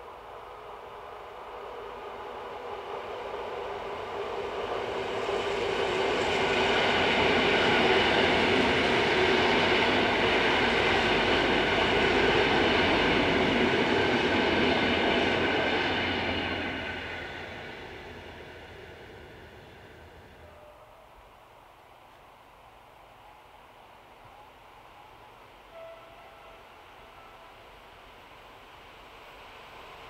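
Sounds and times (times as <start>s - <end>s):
train wheels rumbling on rails: 0.0s - 20.8s
high-pitched train whine: 0.0s - 30.0s.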